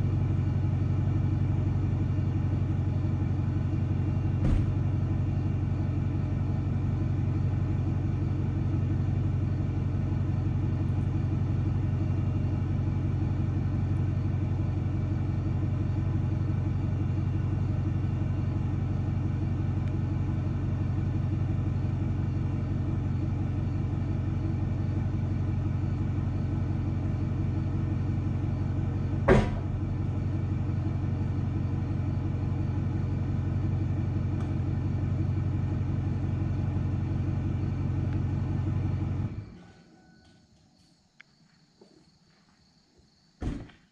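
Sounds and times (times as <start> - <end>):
engine idling: 0.0 - 40.0
sharp knock: 4.4 - 4.8, 29.3 - 29.7.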